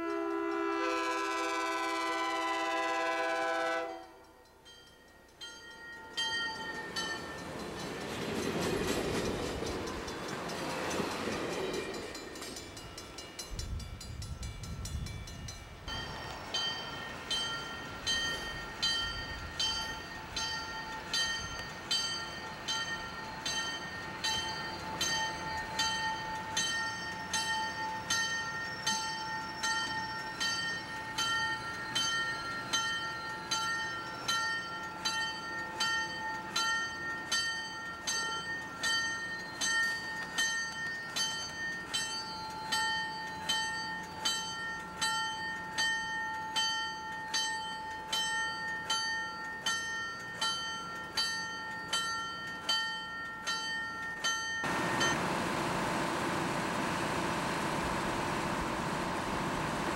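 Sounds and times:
train horn chord: 0.0 - 4.3
train wheels rumbling and clattering: 6.2 - 34.3
bell ringing: 9.2 - 55.3.

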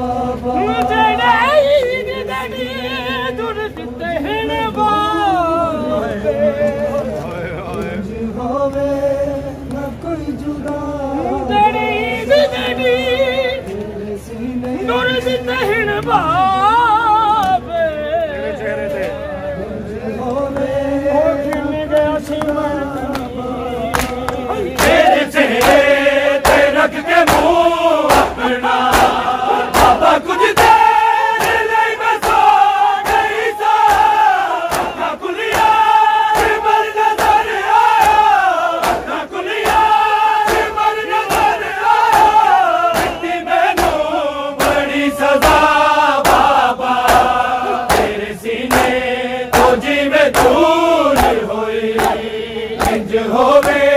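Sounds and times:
men chanting in unison: 0.0 - 53.9
men beating their chests: 23.9 - 53.9.

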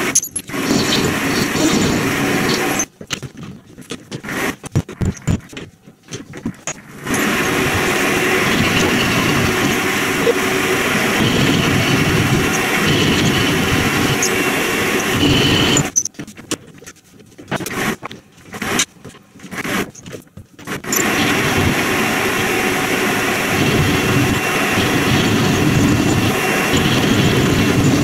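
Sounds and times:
metal lathe running: 0.0 - 2.9, 7.0 - 16.0, 20.9 - 28.0.

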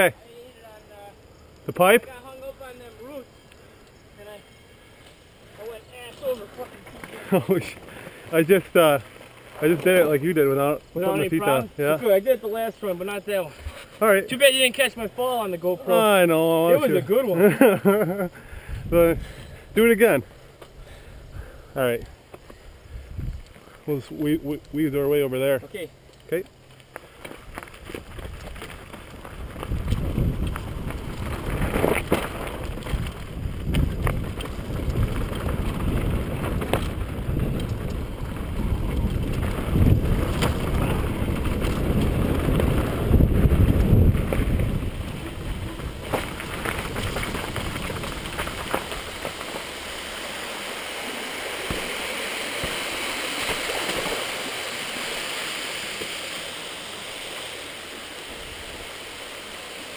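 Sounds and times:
mountain bike rolling on dirt: 0.0 - 59.9
wind buffeting microphone: 18.4 - 19.8, 22.6 - 23.5, 27.4 - 49.4
bike knocks and rattles: 27.2 - 49.6.

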